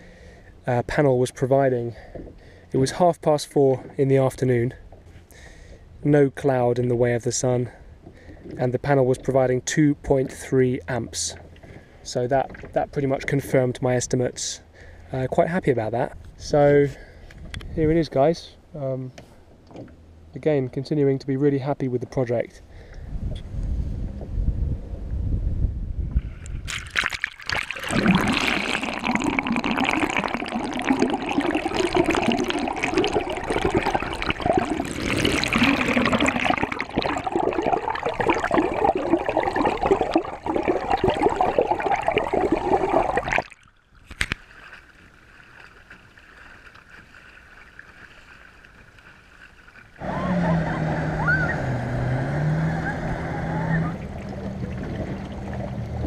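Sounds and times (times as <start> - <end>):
water rushing and gurgling: 26.6 - 45.6, 49.8 - 56.0
low engine hum: 49.9 - 56.0.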